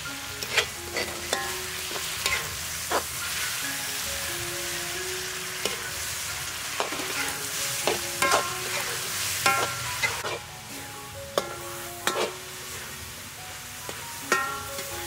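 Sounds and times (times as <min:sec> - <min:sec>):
meat sizzling in a wok: 0:00.0 - 0:15.0
metal spatula scraping pan: 0:00.4 - 0:03.2, 0:06.8 - 0:10.4, 0:11.4 - 0:12.9.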